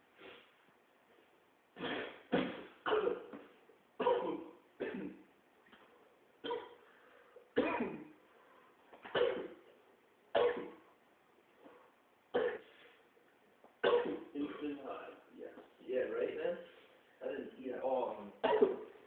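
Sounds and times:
man coughing: 1.8 - 3.4, 4.0 - 5.2, 7.6 - 8.1, 9.0 - 9.6, 13.8 - 14.8, 18.4 - 18.9.

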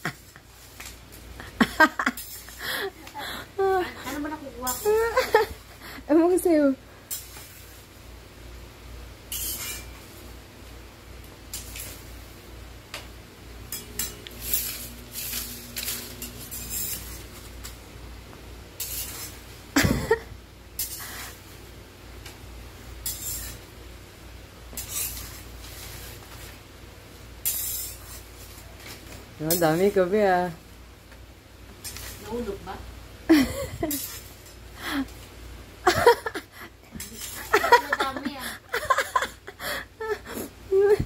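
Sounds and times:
spatula scraping frying pan: 9.3 - 10.0, 13.7 - 17.5, 18.8 - 19.4, 23.0 - 23.7, 24.7 - 26.2, 27.4 - 28.6.

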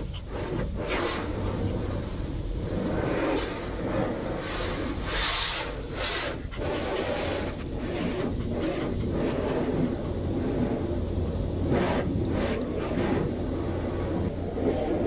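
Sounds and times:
hissing water spray: 0.0 - 9.8
car wash rumble: 0.0 - 15.0.

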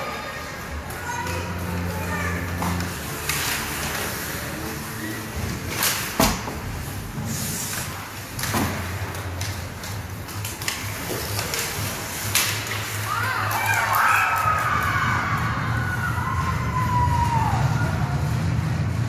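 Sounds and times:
low arena hum: 0.0 - 19.0
hockey sticks knocking puck: 8.4 - 13.8.

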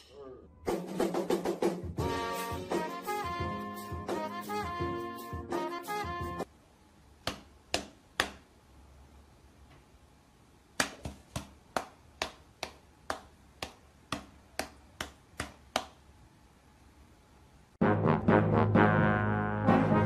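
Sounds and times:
sharp snaps: 7.2 - 8.5, 10.7 - 16.0.

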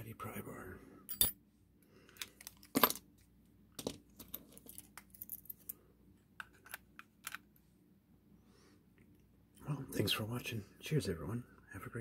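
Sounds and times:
metal tools and keys clinking: 1.1 - 1.4.

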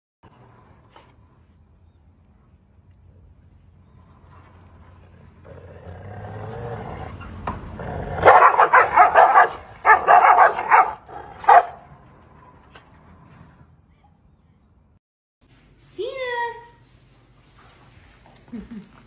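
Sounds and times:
dog growling: 3.8 - 8.3
dogs barking aggressively: 5.5 - 13.3.

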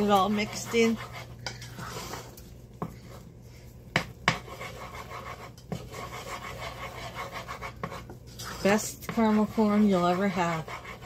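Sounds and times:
spoon scraping saucepan: 0.0 - 2.3.

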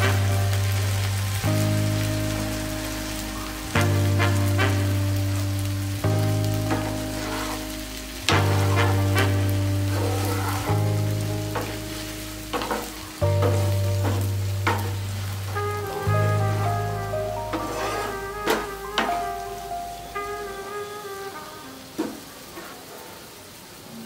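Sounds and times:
background music of sustained chords: 0.0 - 22.2
food sizzling in pan: 0.0 - 22.7
wooden spatula scraping pan: 6.7 - 7.8, 17.2 - 19.2.

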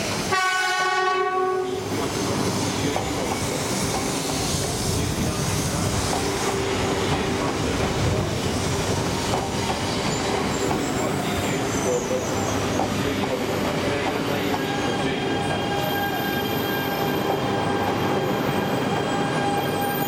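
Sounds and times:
train cars rolling on rails: 0.0 - 20.0
train horn blast: 0.3 - 1.8.

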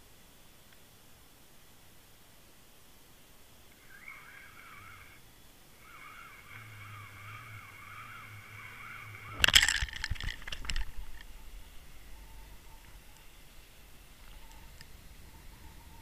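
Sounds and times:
faint wavering whine: 0.0 - 16.0
low hum: 3.6 - 16.0.

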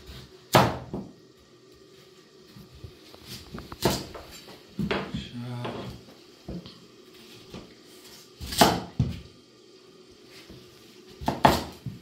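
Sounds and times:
knife cutting pumpkin on board: 3.8 - 4.3, 8.1 - 9.2, 11.2 - 12.0.

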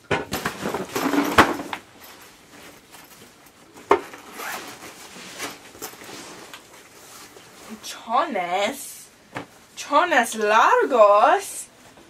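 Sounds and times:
fabric backpack rustling: 0.4 - 7.8
zipper: 4.1 - 6.5.

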